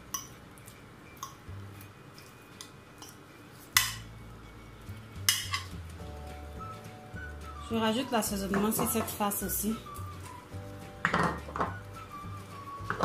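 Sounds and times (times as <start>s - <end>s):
fork clinking and scraping on glass dish: 5.2s - 5.8s.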